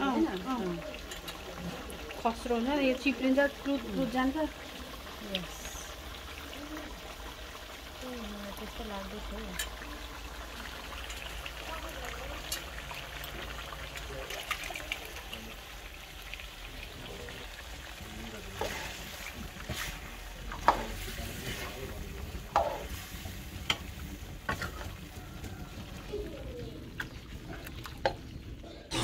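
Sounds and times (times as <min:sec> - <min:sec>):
meat sizzling in metal pan: 0:00.0 - 0:29.0
ladle scraping and knocking pan: 0:18.6 - 0:21.8, 0:22.5 - 0:23.0, 0:24.5 - 0:25.0.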